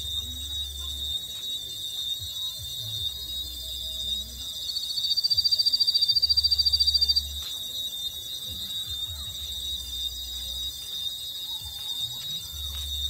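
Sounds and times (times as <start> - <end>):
rapid electronic beeping: 0.0 - 13.0.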